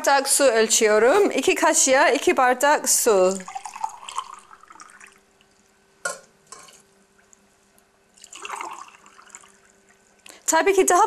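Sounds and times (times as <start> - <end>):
water splashing into a pot: 3.3 - 5.2, 8.2 - 9.8
water pouring into a glass: 3.3 - 5.6, 8.1 - 10.0.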